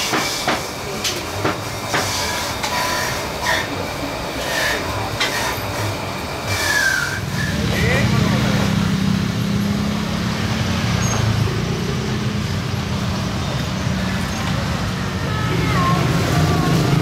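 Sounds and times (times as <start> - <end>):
faint voices: 0.3 - 9.0, 12.6 - 17.0
vehicle engines humming: 0.6 - 17.0.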